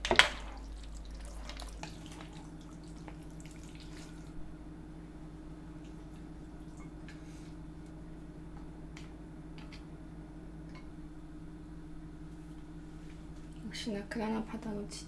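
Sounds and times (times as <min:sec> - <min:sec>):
steady low hum: 0:00.0 - 0:15.0
soft wet squishes: 0:00.3 - 0:04.4, 0:05.7 - 0:08.0.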